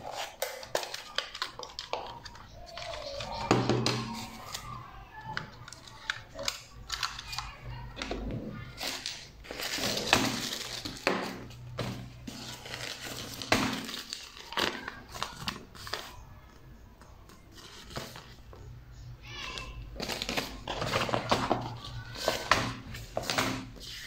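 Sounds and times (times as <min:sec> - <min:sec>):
plastic bag crinkling: 0:08.8 - 0:16.0.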